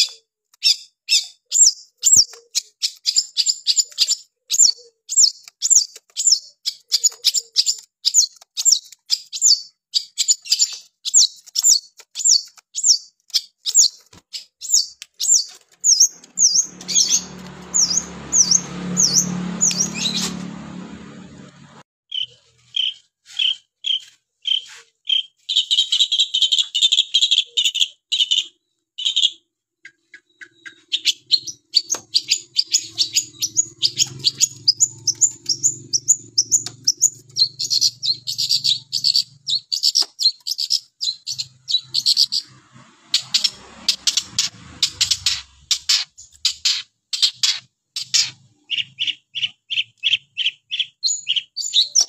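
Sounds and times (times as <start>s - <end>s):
shrike singing: 14.6s - 21.3s.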